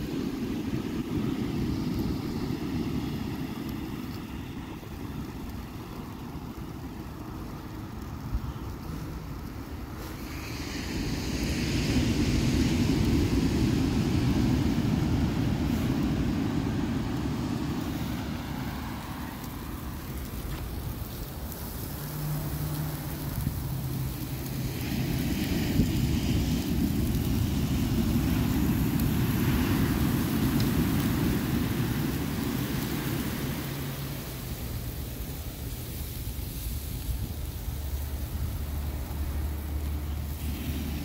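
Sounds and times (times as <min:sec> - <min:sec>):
ocean surf on sand: 0:00.0 - 0:41.0.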